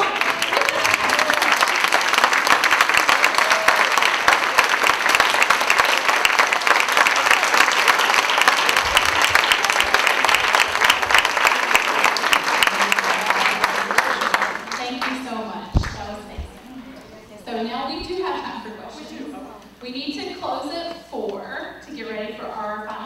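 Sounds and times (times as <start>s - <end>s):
audience applauding: 0.0s - 15.2s.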